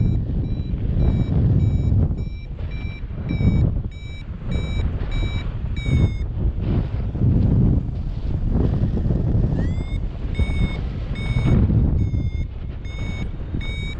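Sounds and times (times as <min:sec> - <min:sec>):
variometer beeping: 0:00.0 - 0:06.3, 0:09.6 - 0:13.9
wind noise on microphone: 0:00.0 - 0:13.9.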